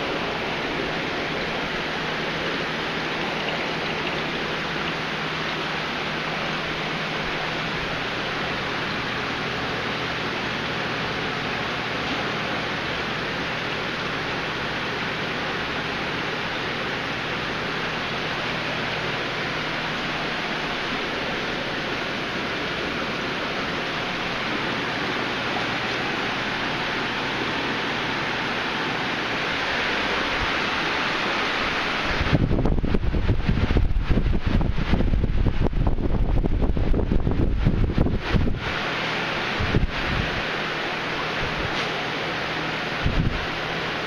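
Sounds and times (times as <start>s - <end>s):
water rushing and splashing: 0.0s - 9.0s.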